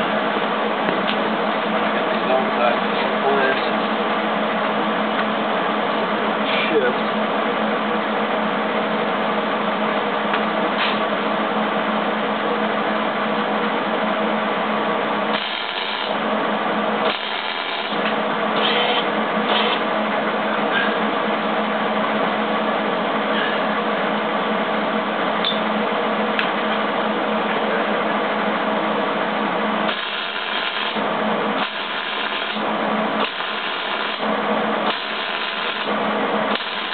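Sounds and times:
welder crackling and buzzing: 14.7 - 20.4, 29.7 - 36.9.

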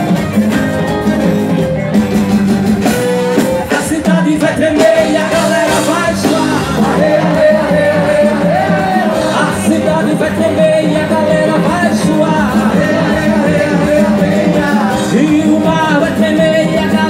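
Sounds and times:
live band playing upbeat music: 0.0 - 17.0
person singing: 3.5 - 17.0.

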